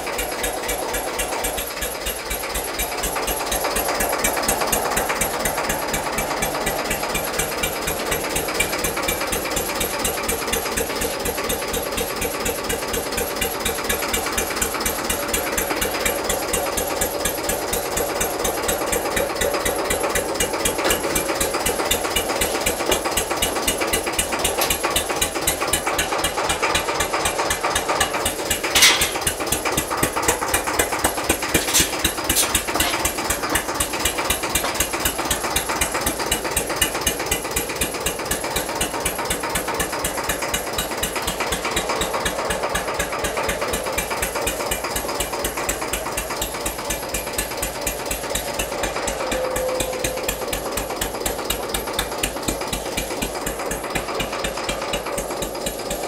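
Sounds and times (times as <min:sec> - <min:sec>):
tractor diesel engine running: 0:00.0 - 0:56.0
sharp metal clank: 0:28.7 - 0:29.3, 0:31.5 - 0:33.2.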